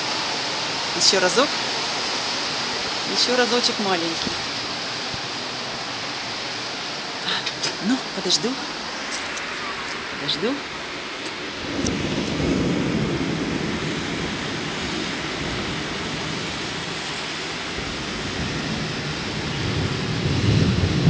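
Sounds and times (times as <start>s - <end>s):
thunder rumbling: 0.0s - 21.0s.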